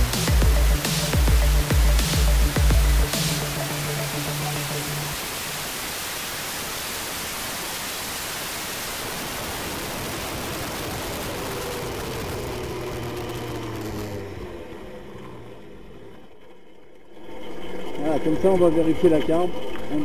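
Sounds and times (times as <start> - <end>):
faint scooter engine: 10.6 - 18.2.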